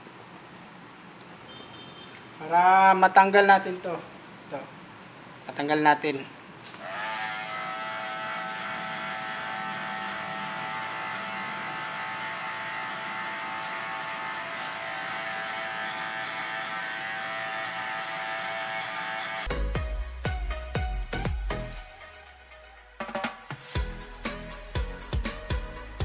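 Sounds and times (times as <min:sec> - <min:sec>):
electric hair clipper buzzing: 0:06.6 - 0:19.5
music with drum beat: 0:23.0 - 0:26.0.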